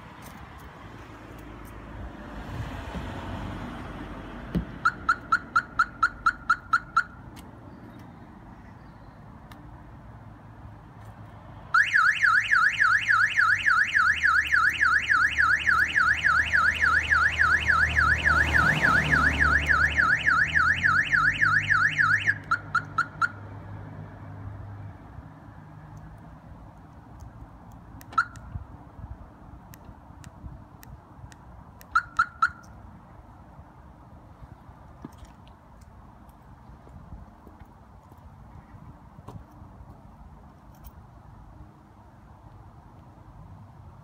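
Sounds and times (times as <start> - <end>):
car alarm chirps: 4.8 - 7.2, 11.8 - 23.4, 28.1 - 28.5, 31.9 - 32.8
car alarm siren warbling: 4.8 - 7.2, 11.8 - 23.4, 28.2 - 28.4, 31.9 - 32.7.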